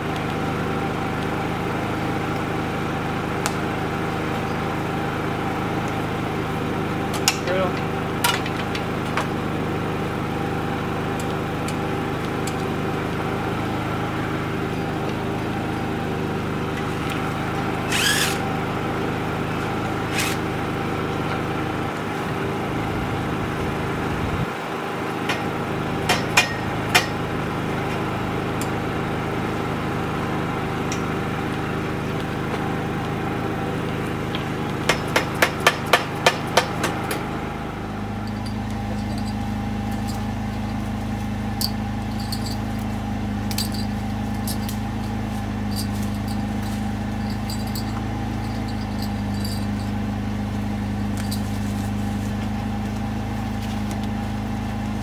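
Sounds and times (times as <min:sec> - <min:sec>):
steady hum: 0:00.0 - 0:55.0
hammer striking metal pole: 0:26.1 - 0:27.2, 0:34.9 - 0:37.2.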